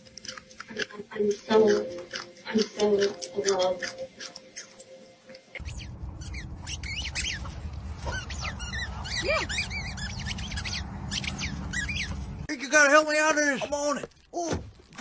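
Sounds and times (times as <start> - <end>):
high squeaks and chirps: 1.5 - 12.5.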